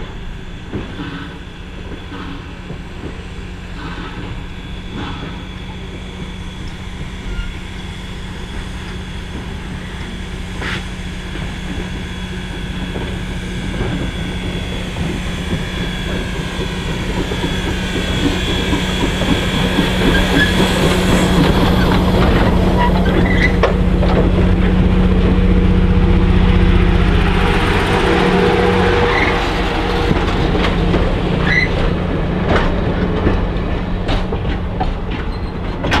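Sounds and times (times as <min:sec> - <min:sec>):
steam locomotive passing: 0:00.0 - 0:36.0
high wheel squeal: 0:03.8 - 0:12.4, 0:13.3 - 0:25.9, 0:26.8 - 0:32.0, 0:35.2 - 0:36.0
wheels clicking over rail joints: 0:12.9 - 0:25.8.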